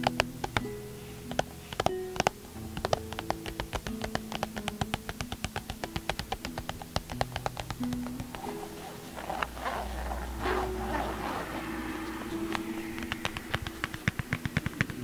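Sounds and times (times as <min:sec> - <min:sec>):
fingertips tapping cardboard box: 0:00.0 - 0:09.6, 0:12.5 - 0:15.0
soft background music: 0:00.0 - 0:15.0.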